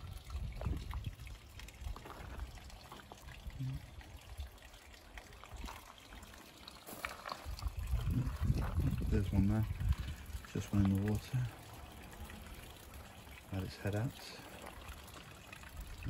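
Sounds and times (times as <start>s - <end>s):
low rumble on microphone: 0.0s - 2.6s, 7.5s - 11.4s
faint trickle of water: 0.0s - 16.0s.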